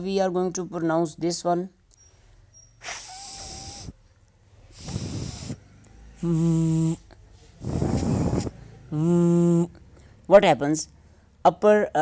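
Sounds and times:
man making f sound: 0:06.2 - 0:09.8
man making v sound: 0:06.2 - 0:09.8.

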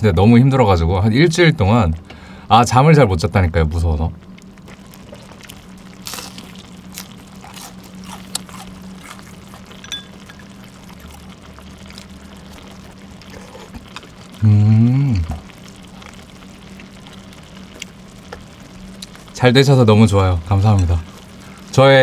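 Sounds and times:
low steady hum: 0:00.0 - 0:22.0
chewing and slurping noodles: 0:04.7 - 0:14.3
person humming mmm: 0:14.4 - 0:15.6.

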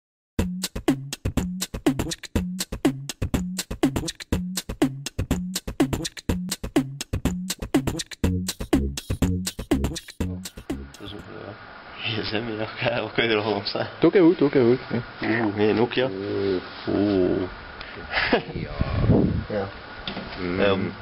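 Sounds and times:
sharp percussive hits: 0:00.4 - 0:11.2.

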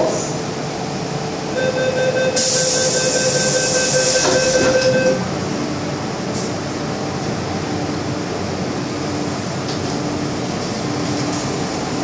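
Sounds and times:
door warning tone: 0:01.6 - 0:05.3
train doors knocking shut: 0:04.1 - 0:05.2.

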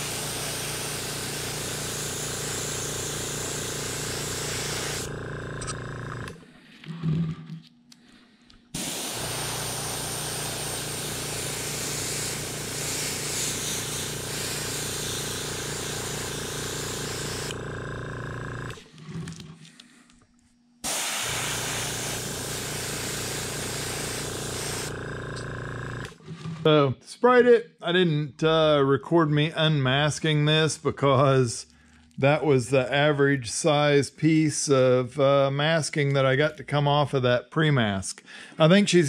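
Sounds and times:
airbrush spraying hiss: 0:00.0 - 0:05.1, 0:08.8 - 0:17.6, 0:20.8 - 0:25.0.

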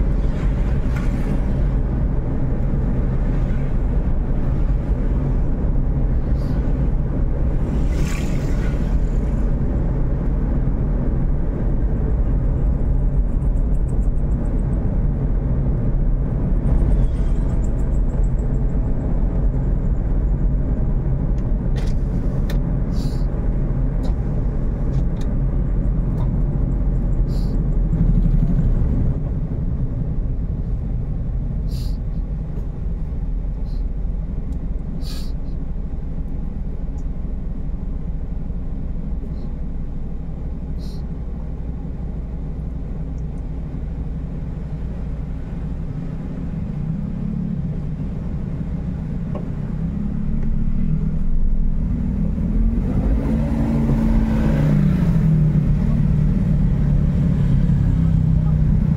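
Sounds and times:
car driving rumble: 0:00.0 - 0:58.9.

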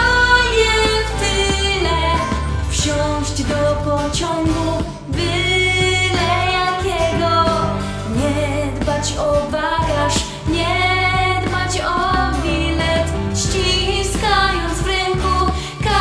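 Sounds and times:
pop song with woman singing: 0:00.0 - 0:16.0.

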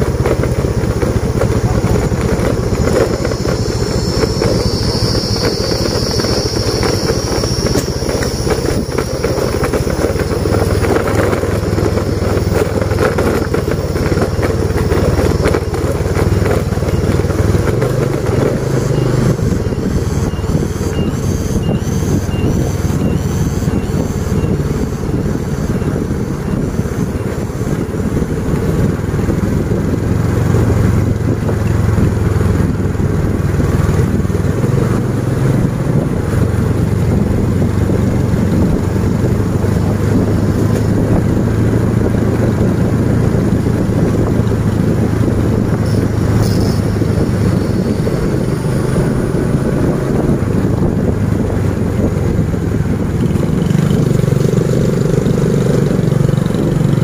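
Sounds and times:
motorcycle engines running: 0:00.0 - 0:57.0
road and wind noise: 0:00.0 - 0:57.0
faint high chirp: 0:18.7 - 0:24.6.

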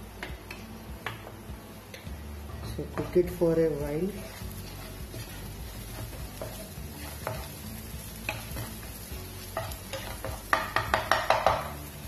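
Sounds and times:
oil sizzling: 0:00.0 - 0:12.0
wooden spatula scraping pan: 0:04.0 - 0:11.6.

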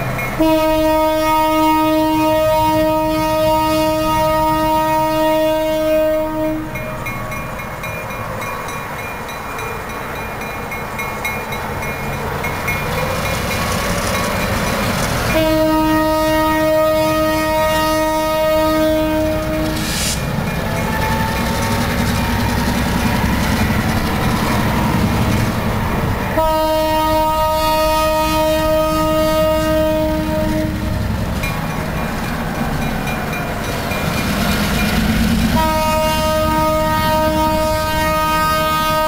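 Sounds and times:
diesel locomotives rumbling: 0:00.0 - 0:39.0
locomotive horn blasts: 0:00.4 - 0:06.9, 0:15.3 - 0:20.3, 0:26.3 - 0:31.1, 0:35.5 - 0:39.0.

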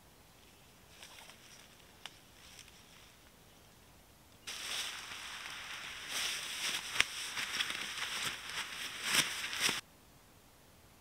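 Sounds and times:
sharp crackles: 0:04.4 - 0:09.8
leaves rustling and crunching: 0:04.5 - 0:09.8.

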